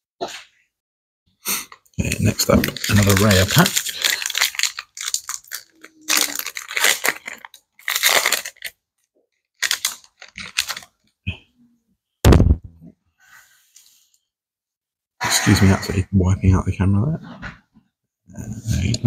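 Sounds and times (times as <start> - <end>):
foil wrapper crinkling and tearing: 2.0 - 8.8, 9.5 - 11.1
loud bump: 12.3 - 12.7.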